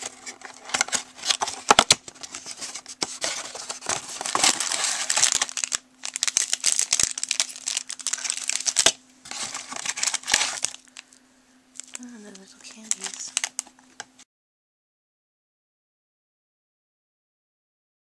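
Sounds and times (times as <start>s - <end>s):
cellophane packets crinkling: 0.0s - 11.2s, 11.8s - 14.2s.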